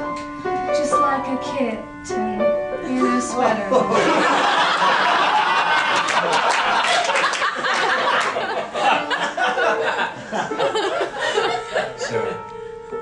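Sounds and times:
piano: 0:00.0 - 0:13.0
audience laughing: 0:03.7 - 0:12.4.

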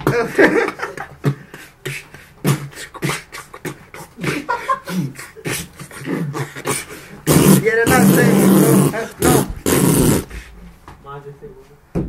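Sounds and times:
beatboxing: 0:01.1 - 0:10.4.

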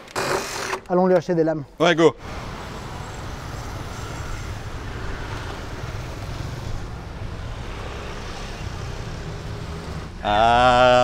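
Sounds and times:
vehicle rumble and hiss: 0:02.2 - 0:11.0.

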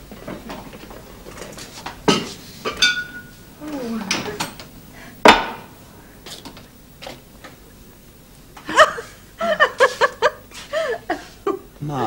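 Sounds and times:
tableware clacking: 0:02.0 - 0:03.4, 0:04.1 - 0:04.7, 0:05.3 - 0:05.8
people chuckling: 0:08.6 - 0:11.8.

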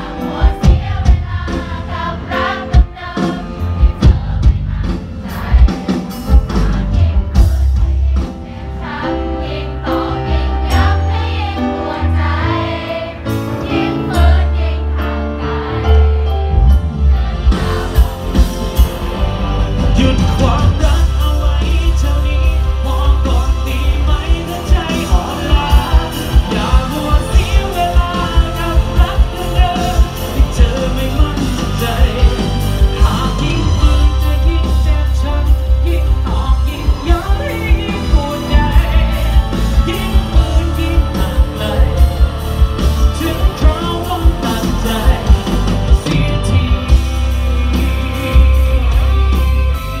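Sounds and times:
steady drum beat: 0:00.0 - 0:09.0, 0:17.1 - 0:50.0
heavy bass: 0:00.0 - 0:10.0, 0:16.0 - 0:50.0
electric guitar: 0:16.4 - 0:50.0
man singing: 0:19.2 - 0:49.8.

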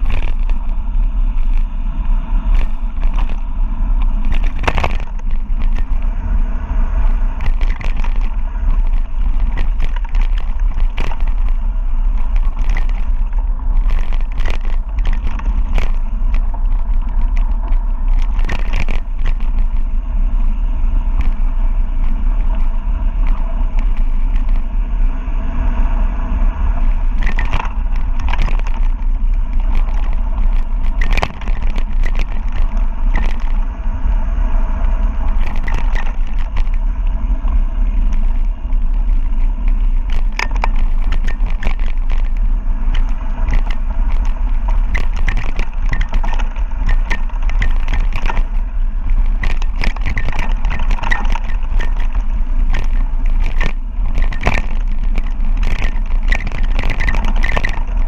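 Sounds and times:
bike rattling over rocks: 0:00.0 - 0:25.2, 0:25.8 - 0:58.0
wind on microphone: 0:00.0 - 0:58.0
tyres crunching over dirt and stones: 0:02.4 - 0:06.1, 0:07.3 - 0:20.0, 0:27.0 - 0:33.7, 0:34.9 - 0:58.0.

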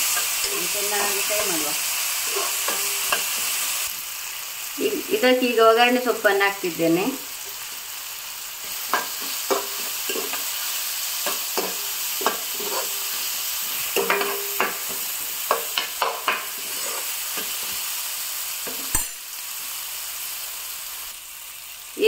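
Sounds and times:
vegetables sizzling in a frying pan: 0:00.0 - 0:22.0
spatula scraping and knocking pan: 0:02.2 - 0:03.6, 0:08.6 - 0:17.9.

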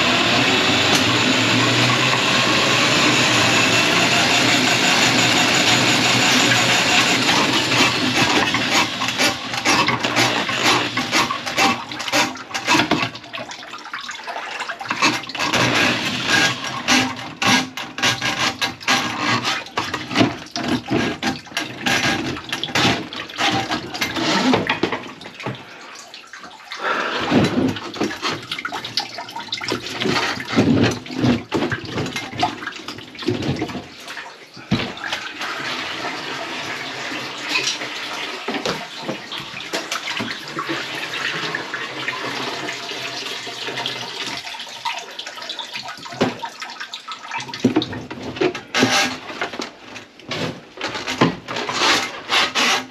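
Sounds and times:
water rushing into sink: 0:00.0 - 0:52.9
water splashing and pouring: 0:06.4 - 0:51.8
metal drain pipe knocks and scrapes: 0:14.9 - 0:25.6, 0:27.2 - 0:28.9, 0:29.6 - 0:33.9.

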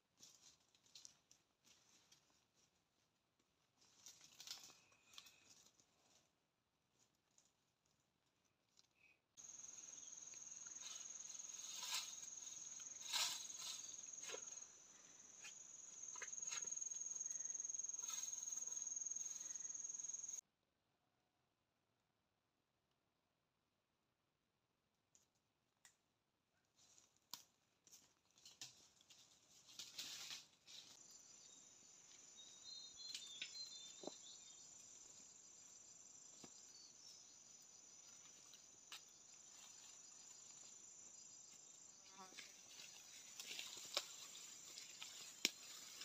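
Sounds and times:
leaves and stems rustling: 0:03.7 - 0:06.3, 0:09.4 - 0:19.6, 0:26.8 - 0:31.2, 0:42.1 - 0:46.0
high insect buzz: 0:09.4 - 0:20.4
brush rustling and snapping: 0:42.4 - 0:46.0.

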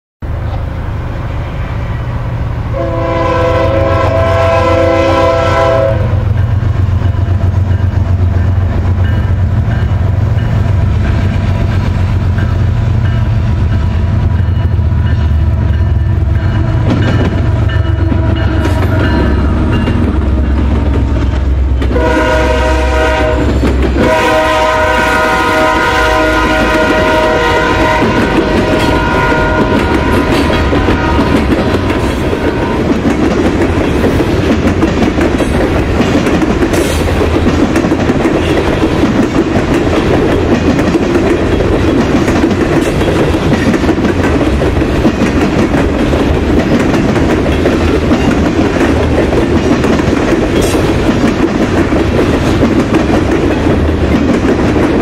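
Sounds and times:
locomotive engine rumble: 0:00.2 - 0:55.0
locomotive air horn blasts: 0:02.7 - 0:06.3, 0:21.8 - 0:31.4.

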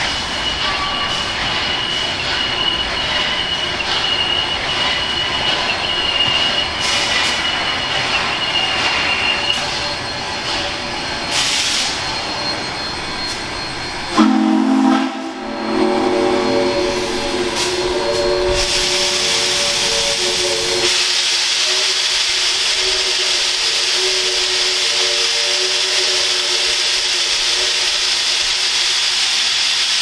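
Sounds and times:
wheel flange squeal: 0:00.0 - 0:29.8
steam locomotive exhaust and rail noise: 0:00.0 - 0:30.0
steam whistle chord: 0:14.1 - 0:28.2.

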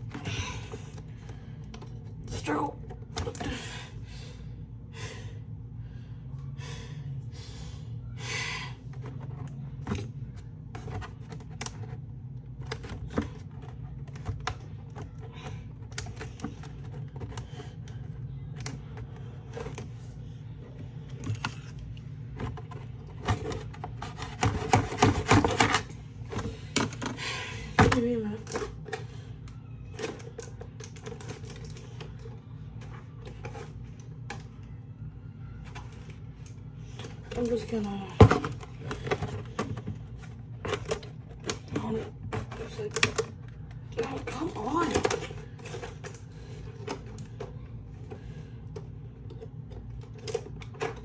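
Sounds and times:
packaging clicks and rustles: 0:09.0 - 0:34.7.

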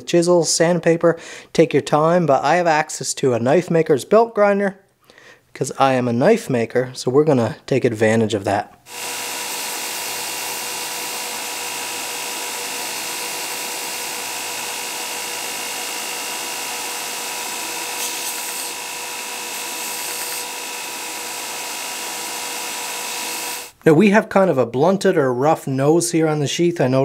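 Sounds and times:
belt grinder whining: 0:08.9 - 0:23.8
leather sanding on belt: 0:17.6 - 0:20.4.

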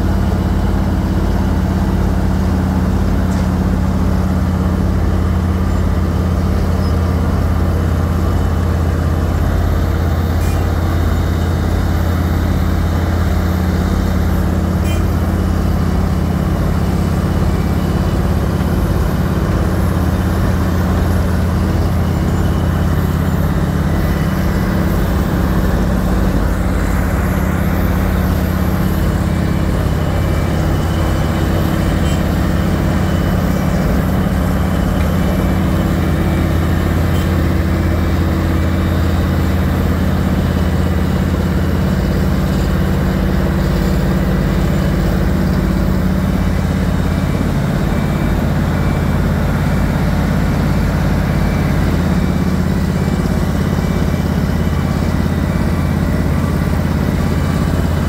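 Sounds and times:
diesel engine drone: 0:00.0 - 0:58.0.

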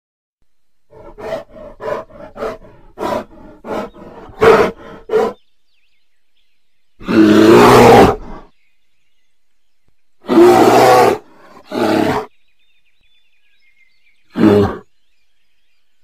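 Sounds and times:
bear grunting: 0:00.9 - 0:05.4, 0:07.0 - 0:08.5, 0:10.2 - 0:12.3, 0:14.3 - 0:14.9
bear roaring: 0:00.9 - 0:05.4, 0:07.0 - 0:08.5, 0:10.2 - 0:12.3, 0:14.3 - 0:14.8.

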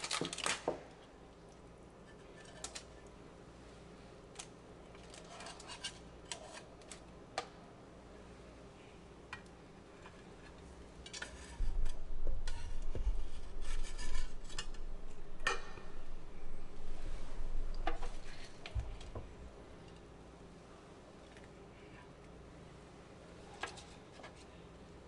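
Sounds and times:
utensils scraping and clinking on tray: 0:05.0 - 0:07.0.

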